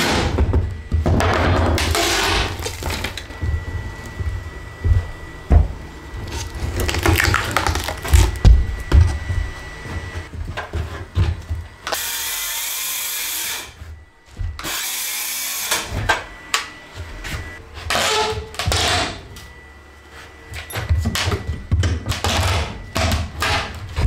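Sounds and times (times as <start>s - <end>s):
circular saw cutting: 11.9s - 13.8s, 14.6s - 15.9s.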